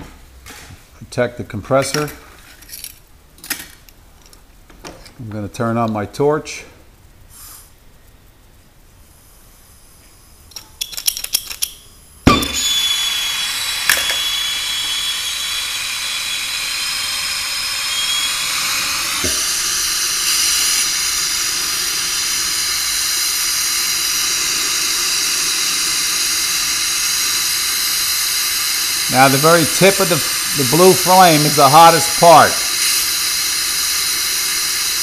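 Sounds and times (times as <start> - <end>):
torch flame hissing: 7.2 - 7.9, 12.1 - 35.0.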